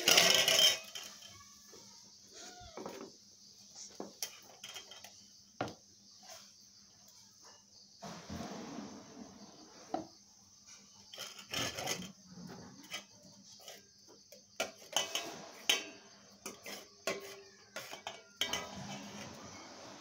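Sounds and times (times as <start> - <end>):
metal spoon clinking in pot: 14.6 - 19.3.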